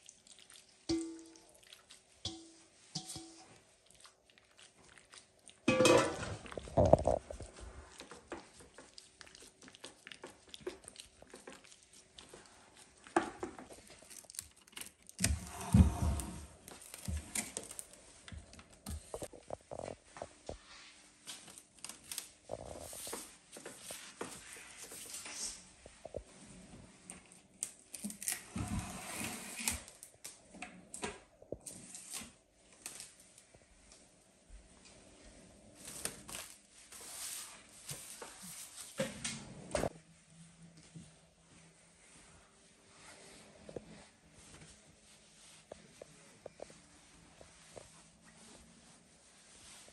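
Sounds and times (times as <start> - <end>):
metal bowl handled: 0.9 - 1.4, 2.2 - 3.6, 5.7 - 7.3
cling film crinkling and tearing: 13.7 - 15.3.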